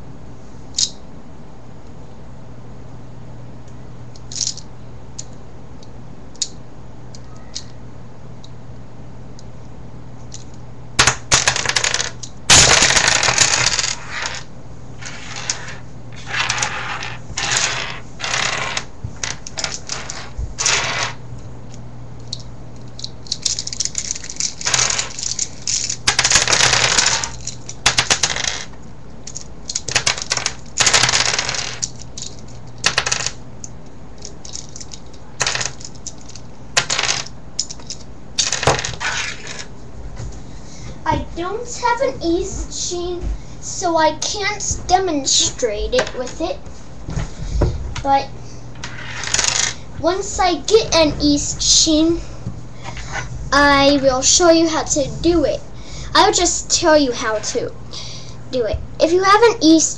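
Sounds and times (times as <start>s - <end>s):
plastic pieces clattering on wood: 11.0s - 14.4s, 15.0s - 21.2s, 23.2s - 28.7s, 29.3s - 33.4s, 34.2s - 39.7s.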